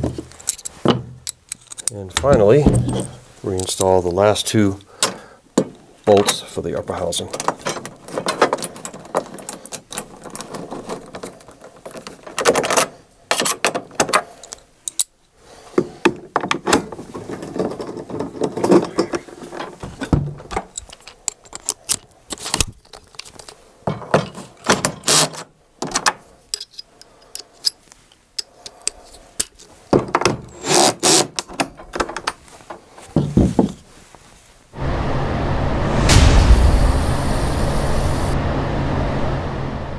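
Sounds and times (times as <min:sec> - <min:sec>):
hand tools and bolts clattering: 0:00.0 - 0:03.9.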